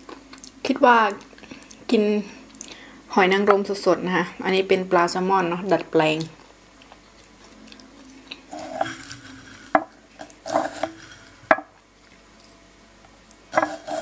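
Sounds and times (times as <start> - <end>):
wet chewing: 6.2 - 9.6.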